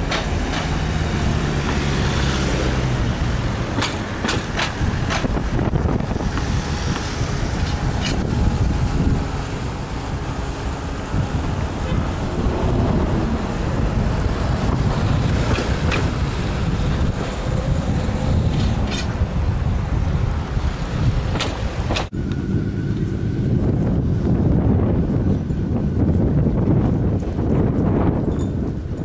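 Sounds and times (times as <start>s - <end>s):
wind buffeting microphone: 0.0s - 29.0s.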